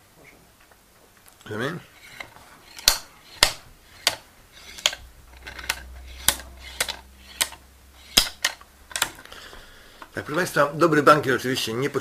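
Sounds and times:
wooden abacus beads clacking: 0:01.9 - 0:09.4.

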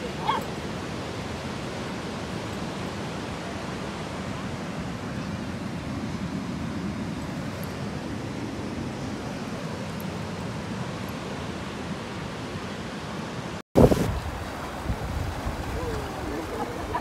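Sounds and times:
ocean surf breaking: 0:13.8 - 0:17.0
wind buffeting microphone: 0:13.8 - 0:17.0.

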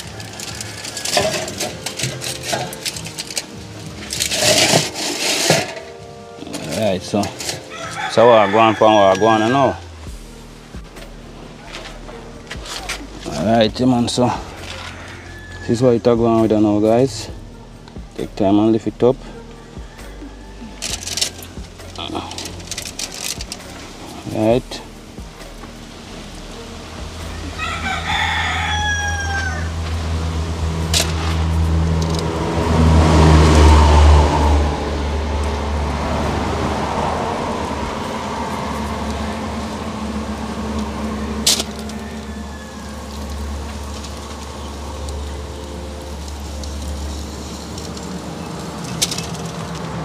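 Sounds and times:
rooster crowing: 0:00.0 - 0:01.8, 0:07.6 - 0:10.0, 0:14.1 - 0:16.1, 0:19.2 - 0:23.8, 0:26.6 - 0:31.2, 0:32.0 - 0:50.0
low engine hum: 0:16.1 - 0:50.0.

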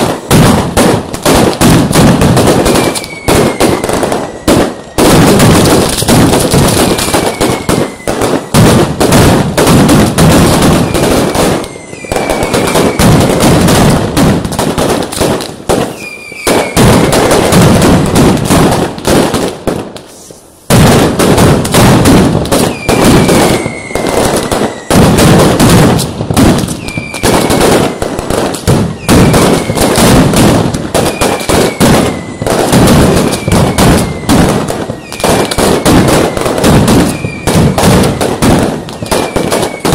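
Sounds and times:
firecrackers banging: 0:00.0 - 0:39.9.

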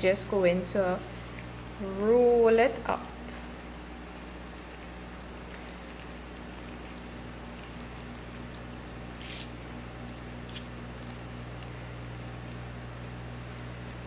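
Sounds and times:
steady low hum: 0:00.0 - 0:14.0
wet squishing of leaves: 0:00.6 - 0:14.0
short crinkle: 0:04.1 - 0:14.0.

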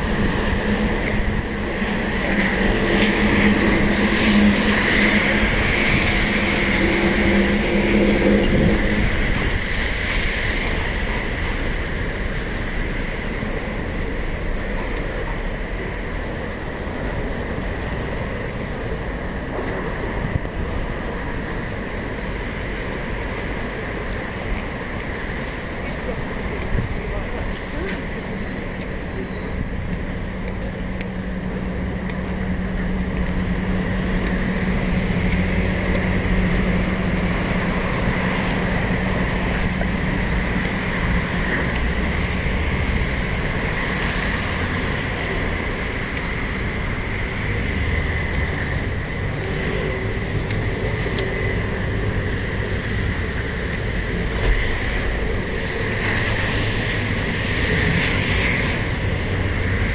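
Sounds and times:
cars and buses on wet streets: 0:00.0 - 0:59.9.

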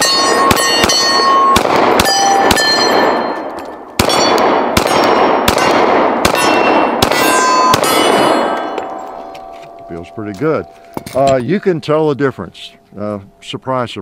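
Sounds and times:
steel targets ringing: 0:00.0 - 0:04.6, 0:06.3 - 0:14.0
pistol shots: 0:00.0 - 0:09.2.

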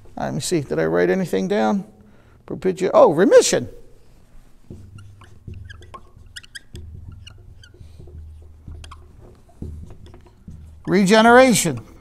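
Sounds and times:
marker squeaking on whiteboard: 0:04.6 - 0:12.0
marker tapping on whiteboard: 0:04.7 - 0:12.0.

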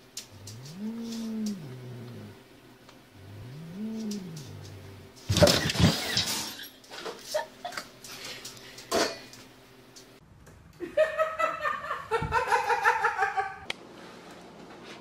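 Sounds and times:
woman laughing: 0:10.8 - 0:13.7.

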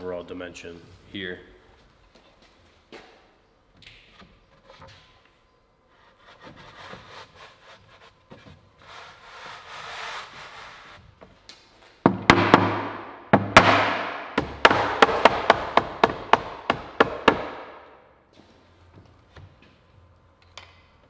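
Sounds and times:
wood scraping against wood: 0:05.8 - 0:11.1
sharp knocks on wood: 0:12.0 - 0:17.7.

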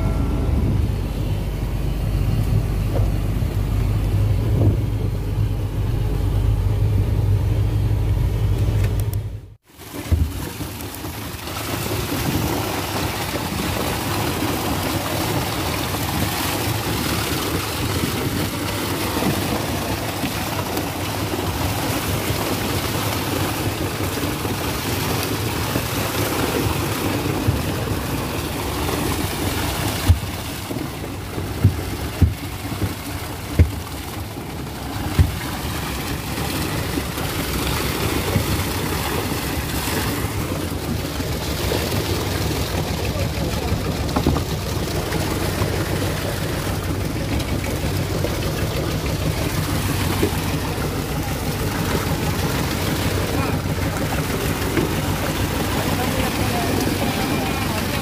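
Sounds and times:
low rumble: 0:00.0 - 0:09.6
fish thrashing and splashing: 0:09.6 - 0:58.0.

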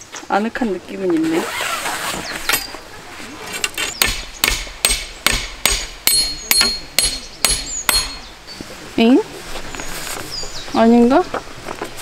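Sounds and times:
hammer striking a peg: 0:04.0 - 0:08.3.

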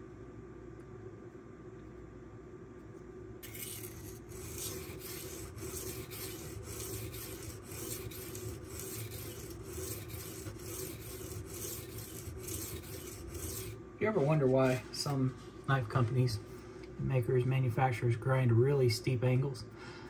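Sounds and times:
knife grinding on whetstone: 0:03.4 - 0:13.8.

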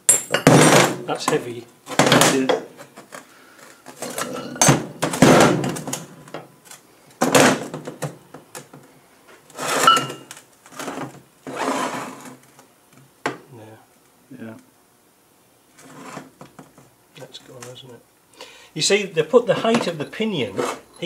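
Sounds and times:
metal parts clunking on workbench: 0:00.1 - 0:02.7, 0:03.9 - 0:05.8
metal scraping: 0:19.6 - 0:21.0.

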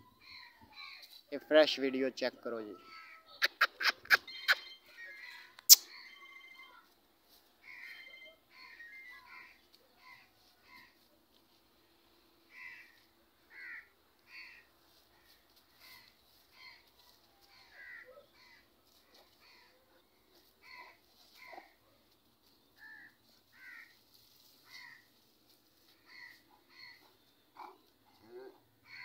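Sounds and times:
birds calling harshly: 0:02.8 - 0:06.7, 0:07.6 - 0:11.0, 0:12.5 - 0:16.8, 0:17.5 - 0:21.7, 0:26.0 - 0:27.9.

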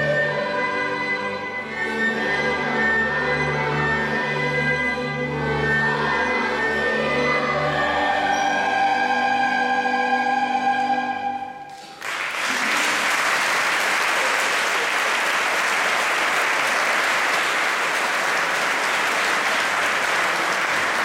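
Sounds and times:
children's choir with instruments: 0:00.0 - 0:13.1
audience applause: 0:11.7 - 0:21.0.

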